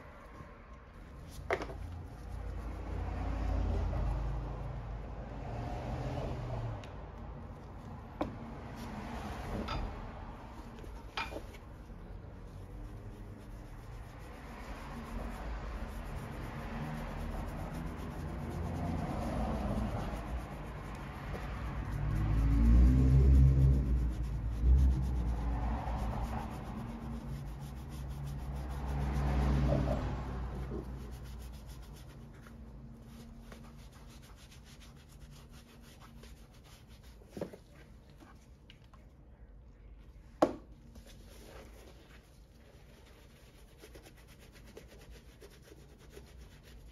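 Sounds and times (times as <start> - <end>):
sponge scrubbing leather: 1.0 - 4.2, 10.5 - 38.5, 40.9 - 46.9.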